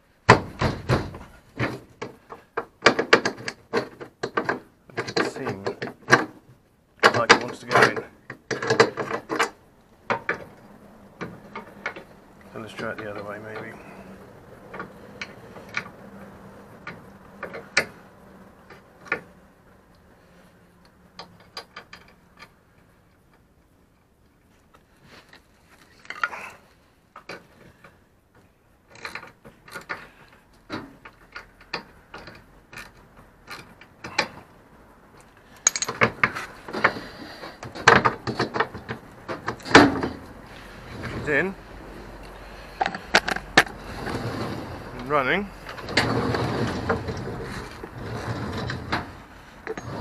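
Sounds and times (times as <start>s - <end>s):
metallic clicks and clatter: 19.9s - 26.4s, 28.3s - 41.3s, 42.2s - 44.3s.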